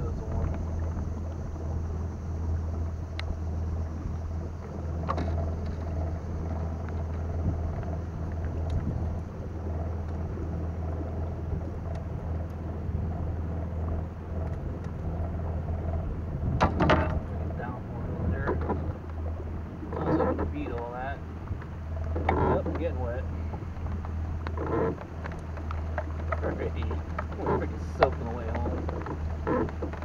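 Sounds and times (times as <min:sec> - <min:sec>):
electric boat motor humming: 0:00.0 - 0:30.0
faint sharp ticks: 0:03.1 - 0:03.4, 0:04.6 - 0:09.3, 0:11.0 - 0:12.6, 0:23.5 - 0:30.0.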